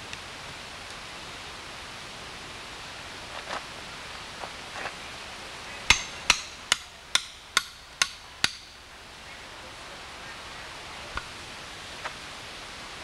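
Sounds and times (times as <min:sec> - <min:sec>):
hammer blows on metal: 0:05.9 - 0:08.8
hammer tapping hatchet: 0:05.9 - 0:08.8.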